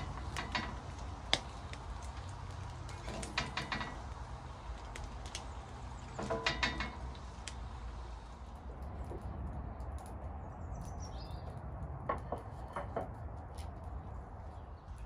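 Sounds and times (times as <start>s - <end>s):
sharp clicks and light knocks: 0.0s - 7.8s.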